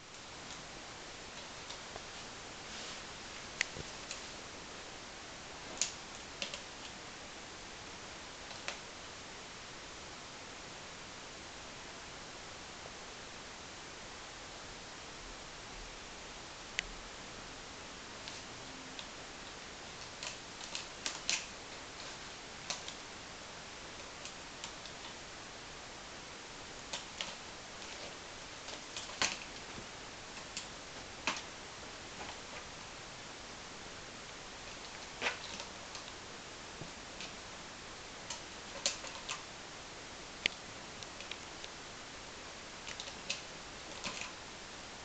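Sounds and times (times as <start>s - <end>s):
steady background hiss: 0.0s - 45.0s
cat claws scratching rope post: 20.0s - 23.0s, 26.8s - 31.5s, 38.3s - 39.4s, 42.9s - 44.3s.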